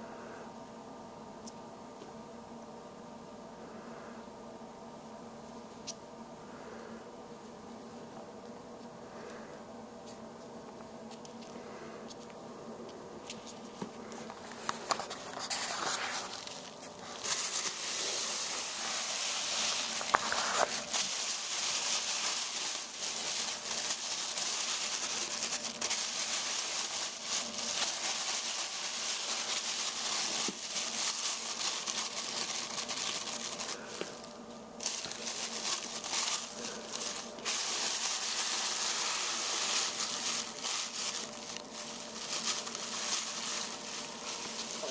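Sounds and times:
plastic bag crinkling: 13.2s - 44.9s.

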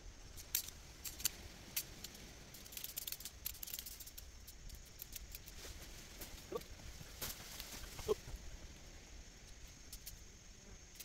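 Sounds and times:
sharp clicks and light rattles: 0.4s - 5.6s, 9.9s - 10.2s.

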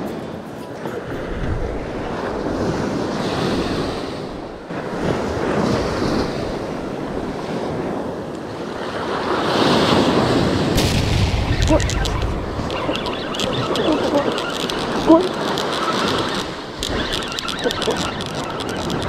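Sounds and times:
sea waves breaking on beach: 0.0s - 19.0s
wind buffeting microphone: 0.0s - 19.0s.

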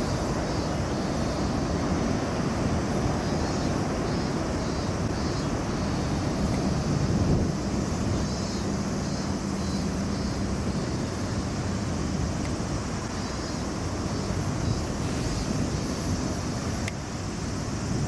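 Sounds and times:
wind buffeting microphone: 0.0s - 13.1s
distant engine drone: 0.0s - 16.9s.

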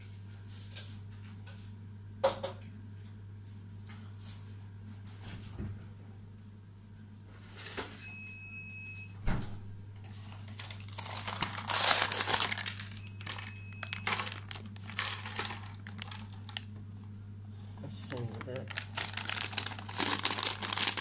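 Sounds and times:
steady low hum: 8.1s - 21.0s
plastic packaging crinkling: 10.3s - 16.8s, 17.9s - 21.0s.

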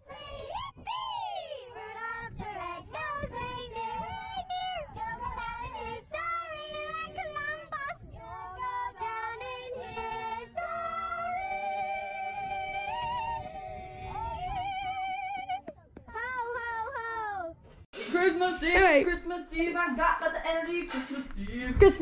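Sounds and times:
children singing a carol: 0.0s - 15.0s.

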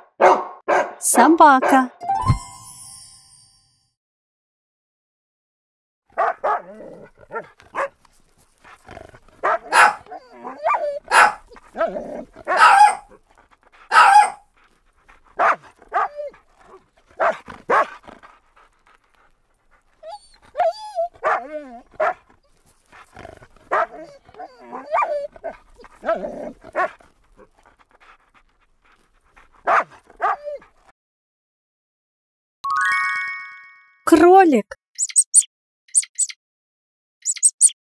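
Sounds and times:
dogs barking and yipping: 0.0s - 1.0s, 6.2s - 30.9s
short chime: 2.0s - 3.9s.

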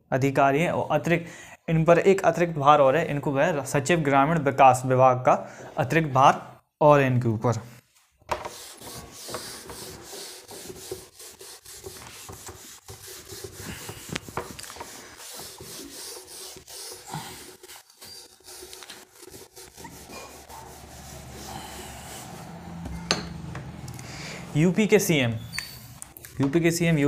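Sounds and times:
pen scratching on paper: 8.4s - 22.8s.

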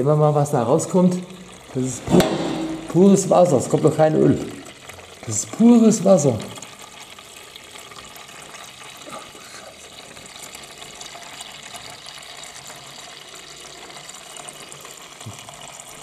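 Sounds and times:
water splashing into drain pan: 0.9s - 9.3s.

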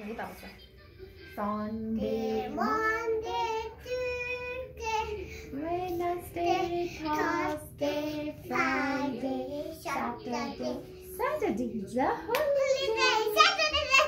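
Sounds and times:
girl singing: 1.4s - 11.0s.

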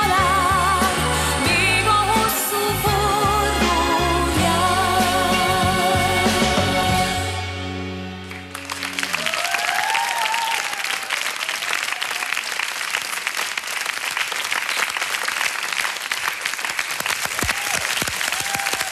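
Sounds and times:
audience applauding: 8.2s - 18.9s.

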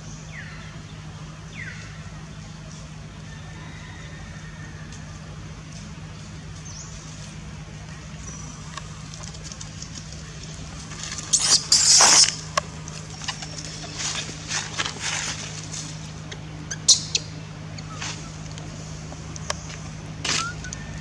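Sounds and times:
low hum: 0.0s - 21.0s
scuffling rustle: 8.9s - 16.3s
infant monkey squeaking: 11.2s - 12.4s, 16.7s - 18.0s, 20.3s - 21.0s.

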